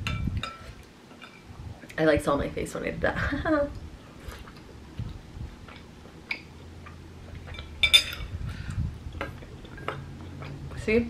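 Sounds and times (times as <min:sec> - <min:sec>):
utensils clinking on ceramic bowl: 0:07.4 - 0:08.3.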